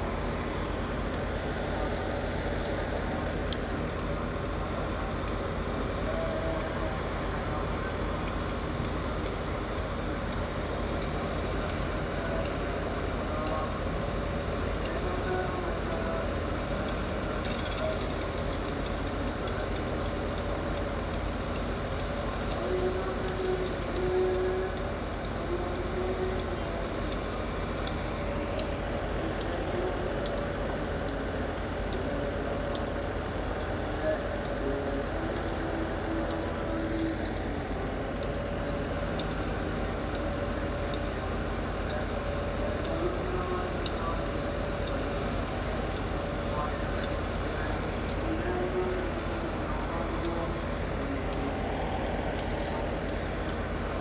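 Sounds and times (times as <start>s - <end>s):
train engine humming: 0.0s - 54.0s
light high ticking: 48.0s - 54.0s.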